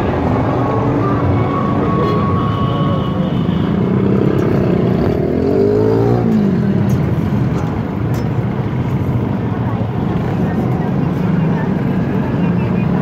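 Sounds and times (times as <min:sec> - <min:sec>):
road traffic din: 0:00.0 - 0:13.0
engine revving: 0:03.8 - 0:07.0.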